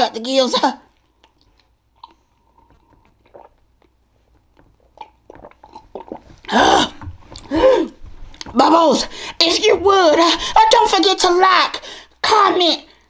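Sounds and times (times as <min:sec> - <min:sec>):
sipping and swallowing water: 0:00.9 - 0:08.5.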